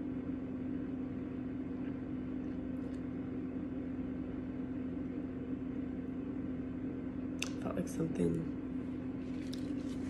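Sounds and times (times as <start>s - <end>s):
appliance hum: 0.0s - 10.0s.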